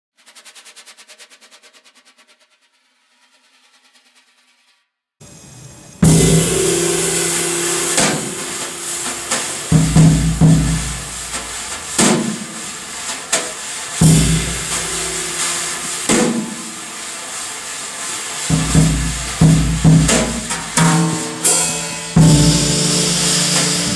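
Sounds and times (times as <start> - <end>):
cymbal crashes: 5.2 - 23.9
heavy low drum hits: 6.0 - 13.1, 14.0 - 16.8, 18.5 - 23.9.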